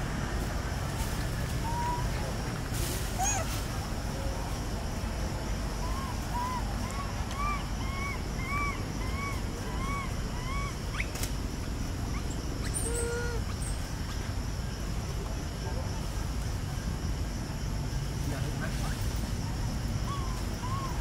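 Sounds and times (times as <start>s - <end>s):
animal calling: 5.8s - 11.2s, 12.1s - 13.8s, 20.0s - 21.0s.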